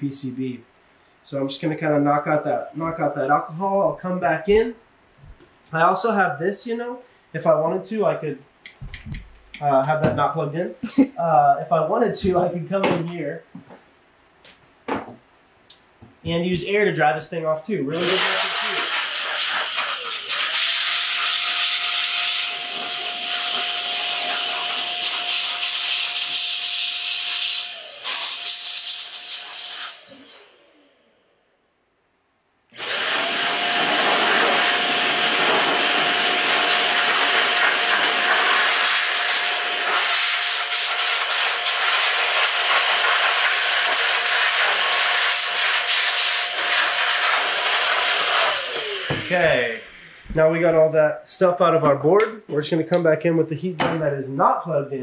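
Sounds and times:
electric air blower whining: 17.9s - 31.2s, 32.7s - 50.4s.

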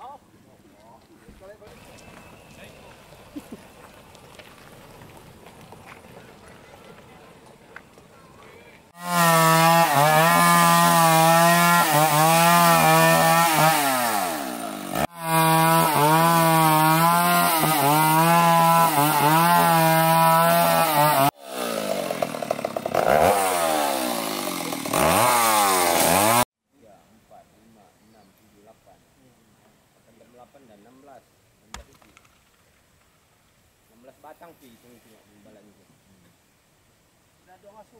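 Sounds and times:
chainsaw cutting timber: 9.0s - 26.5s.

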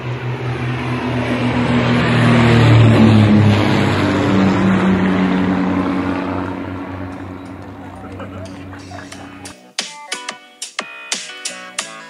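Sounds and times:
propeller plane passing overhead: 0.0s - 9.5s.

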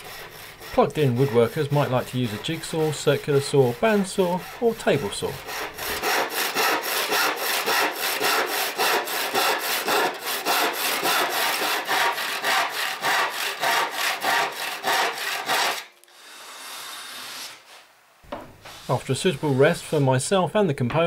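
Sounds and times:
handsaw cutting wood: 0.0s - 17.7s, 18.7s - 20.1s.

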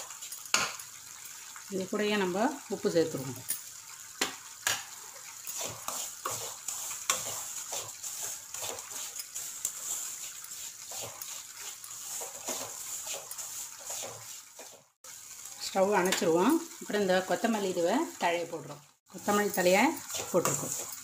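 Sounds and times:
wooden spoon scraping pan: 5.4s - 15.0s, 20.0s - 21.0s.

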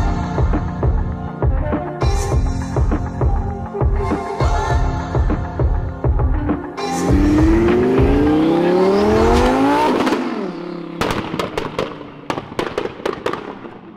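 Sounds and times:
sports car accelerating: 6.9s - 12.2s
exhaust pops and bangs: 11.0s - 13.6s.

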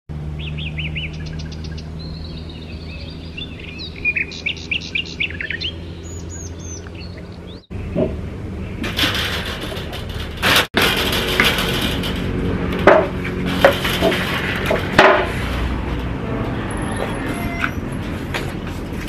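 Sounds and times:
small birds chirping: 0.3s - 8.9s.

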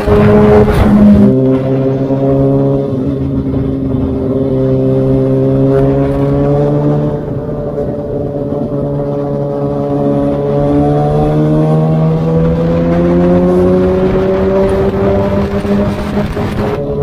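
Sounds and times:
motorcycle engine cruising: 0.0s - 17.0s.

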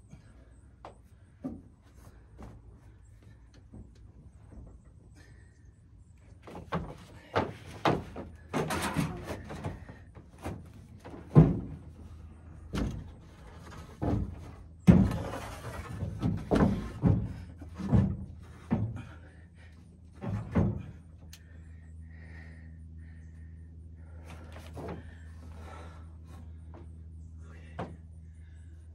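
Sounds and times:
boards scraping and sliding: 13.1s - 18.8s.

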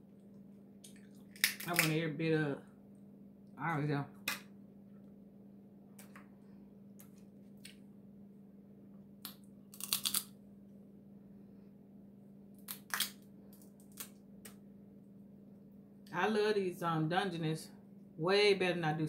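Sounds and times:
steady low hum: 0.0s - 19.0s
crab shell crunching: 0.8s - 2.0s, 9.2s - 10.4s, 12.6s - 14.6s.

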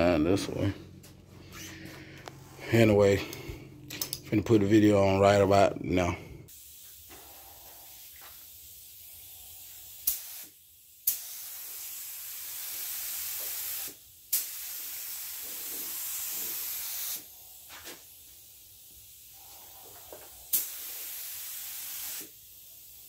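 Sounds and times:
spray gun air hissing: 6.5s - 23.0s.

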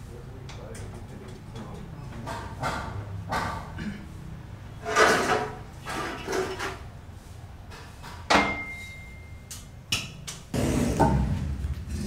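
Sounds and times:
ringing metal strike: 8.4s - 9.6s.

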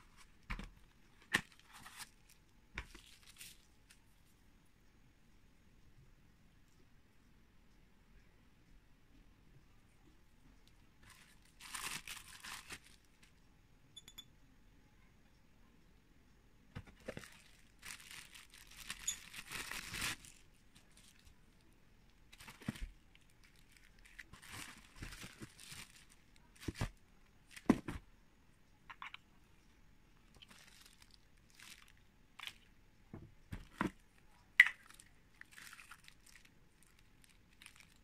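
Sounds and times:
plastic bag crinkling: 11.0s - 13.3s, 16.9s - 21.3s, 22.3s - 26.9s, 30.3s - 32.7s, 34.6s - 38.0s.

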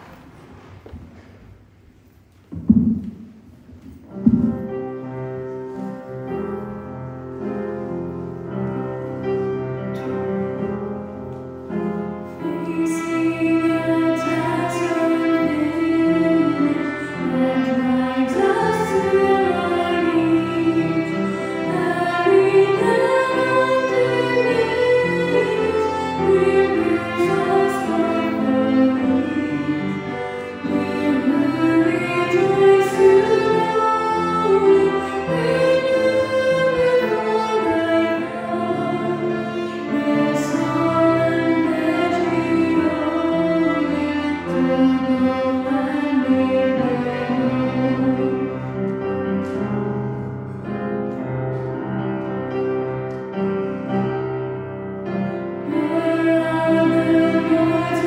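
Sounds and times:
sustained instrumental accompaniment: 11.6s - 51.8s
female vocal trio singing hymn: 12.4s - 48.6s, 55.6s - 58.0s.

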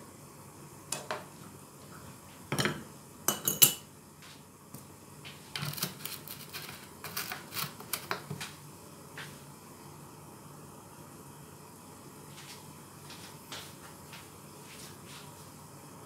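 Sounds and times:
dishes clinking and clattering: 2.5s - 3.9s.

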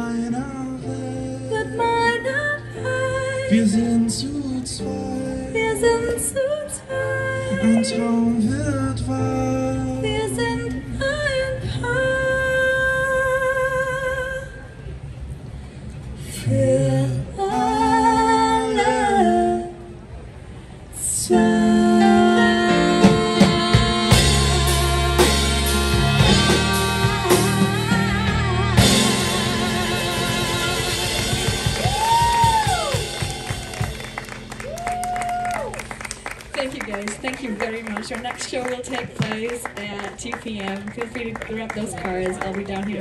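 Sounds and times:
woman and man singing: 0.0s - 14.5s, 16.3s - 19.9s, 21.0s - 32.5s
keyboard: 17.2s - 37.9s
drums and full band: 22.7s - 36.4s, 38.7s - 39.7s.

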